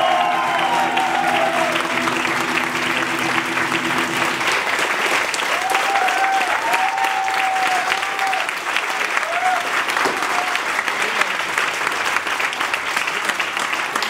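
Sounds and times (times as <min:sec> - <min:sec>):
low sustained tone: 0:00.0 - 0:06.7
live music: 0:00.0 - 0:08.2
audience applauding: 0:00.0 - 0:14.0.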